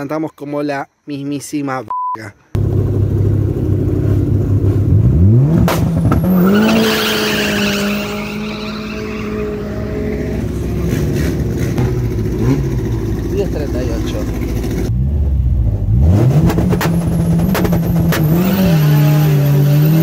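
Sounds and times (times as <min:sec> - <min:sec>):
race car engine revving: 0:02.6 - 0:20.0
tyre squeal: 0:06.2 - 0:11.8.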